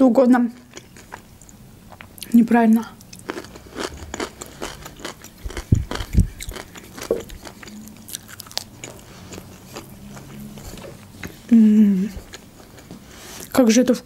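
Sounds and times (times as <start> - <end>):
crunchy chewing: 0.7 - 2.4, 3.0 - 11.5, 12.1 - 13.6
deep thumps: 5.5 - 6.5.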